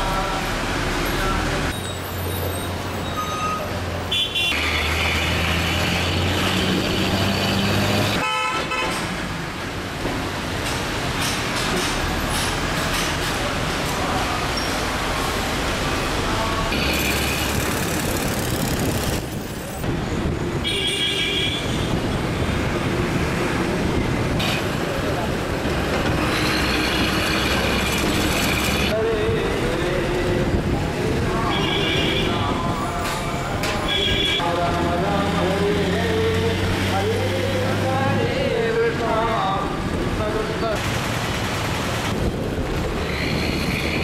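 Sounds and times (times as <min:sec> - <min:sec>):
road traffic rumble and hiss: 0:00.0 - 0:44.0
vehicle horn honks: 0:08.2 - 0:09.0, 0:33.8 - 0:34.4.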